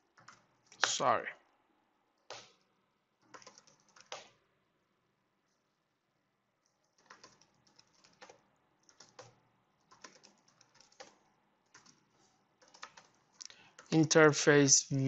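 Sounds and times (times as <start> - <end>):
keyboard typing: 0.0 - 1.0, 2.2 - 4.4, 6.6 - 14.2.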